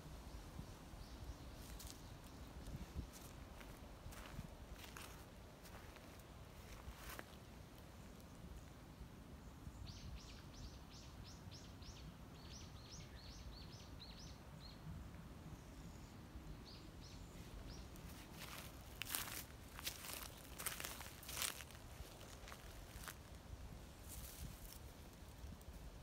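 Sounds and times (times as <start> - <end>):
outdoor background noise: 0.0 - 26.0.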